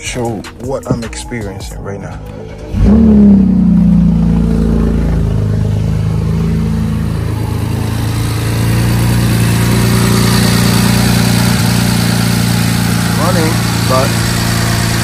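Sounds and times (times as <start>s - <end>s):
car engine idling: 0.0s - 15.0s.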